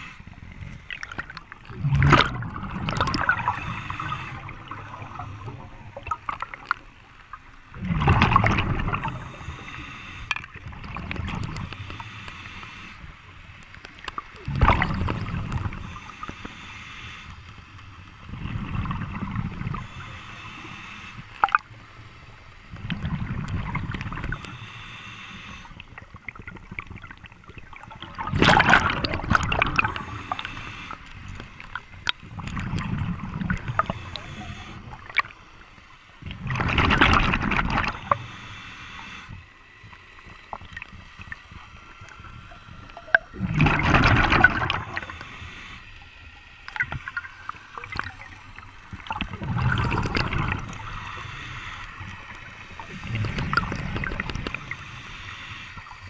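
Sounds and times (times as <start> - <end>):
diver breathing through regulator: 0.0 - 0.5, 3.1 - 5.8, 9.0 - 10.4, 11.5 - 13.1, 15.7 - 17.5, 19.3 - 21.4, 24.3 - 25.8, 29.6 - 31.6, 33.4 - 35.0, 37.4 - 39.4, 43.4 - 46.0, 49.0 - 56.0
exhaled bubbles gurgling: 0.0 - 13.0, 13.8 - 16.6, 18.2 - 21.8, 22.7 - 24.7, 25.4 - 35.5, 36.1 - 39.4, 40.4 - 45.8, 46.6 - 56.0.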